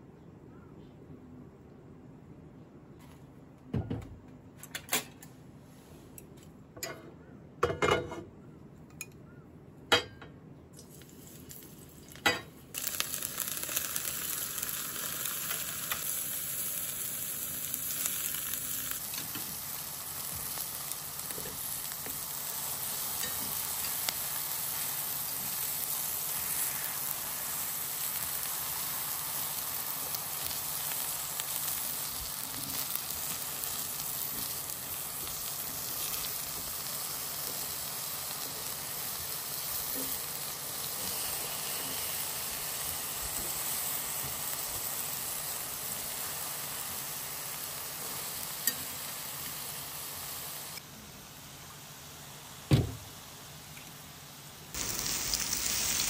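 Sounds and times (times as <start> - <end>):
eggplant sizzling in oil: 10.8 - 50.9, 54.7 - 56.0.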